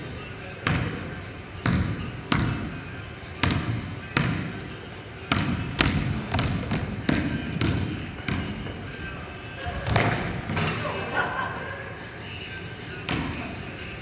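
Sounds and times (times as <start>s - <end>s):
basketball bouncing on hardwood floor: 5.3s - 8.6s.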